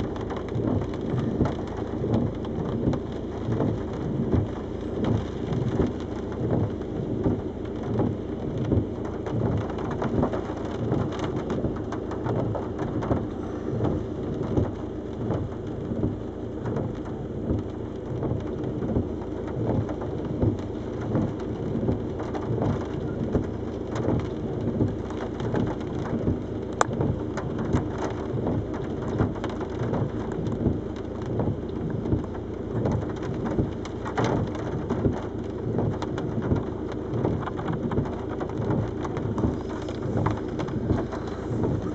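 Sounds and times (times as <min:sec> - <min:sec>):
water spattering on car roof: 0:00.0 - 0:41.9
wind buffeting a car: 0:00.0 - 0:41.9.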